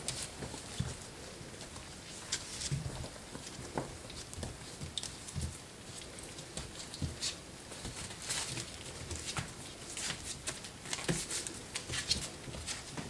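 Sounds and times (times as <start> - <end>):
puppies thudding and scrabbling: 0.0 - 13.0.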